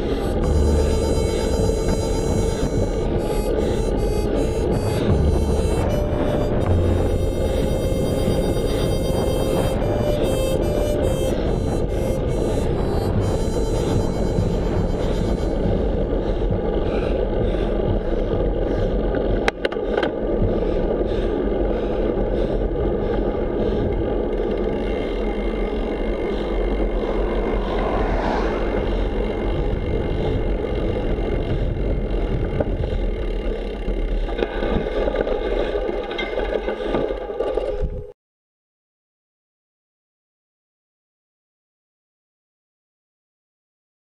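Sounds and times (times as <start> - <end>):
car passing: 0.0 - 17.7, 25.4 - 31.1
bicycle ride rumble: 0.0 - 38.2.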